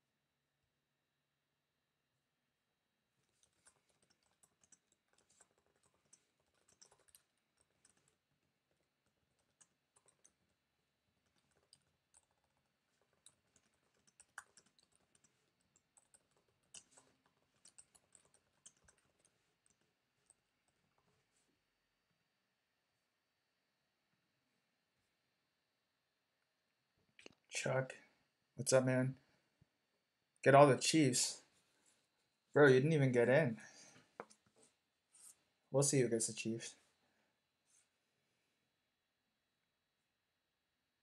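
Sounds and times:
typing on computer keyboard: 3.2s - 21.0s.

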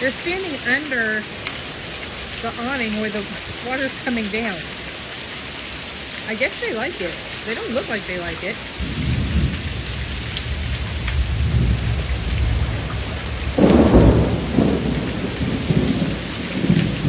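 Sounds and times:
heavy rain: 0.0s - 17.0s
thunder rumbling: 8.7s - 17.0s.

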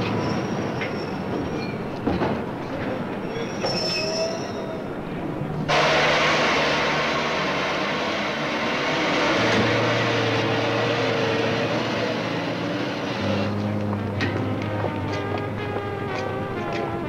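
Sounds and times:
train rushing noise: 0.0s - 17.0s
music: 13.1s - 17.0s.

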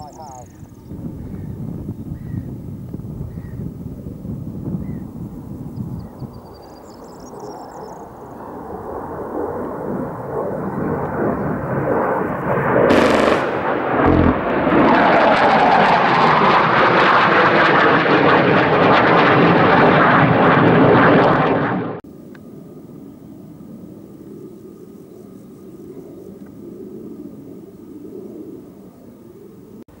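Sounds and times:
jet engines roaring: 8.2s - 24.4s
cannon burst: 12.9s - 16.2s.

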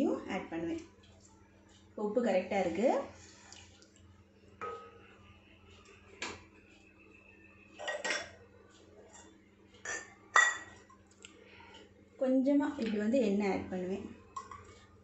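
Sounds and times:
spoon clinking against pot: 7.8s - 8.4s, 9.8s - 10.8s, 14.4s - 14.8s.

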